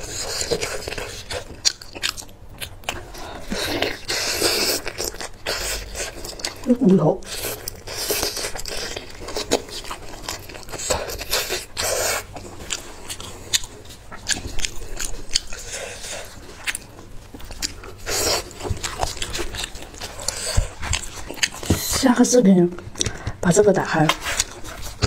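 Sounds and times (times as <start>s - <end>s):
chewing and mouth smacks: 0.0s - 22.1s, 22.7s - 25.0s
meat tearing and rustling: 0.0s - 22.2s, 22.9s - 25.0s.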